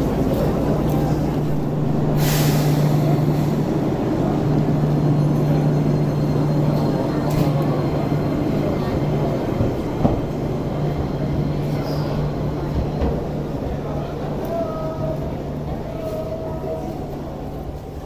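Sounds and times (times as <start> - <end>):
electric train humming: 0.0 - 17.9
crowd chatter: 0.0 - 18.0
air brakes hissing: 2.0 - 3.9.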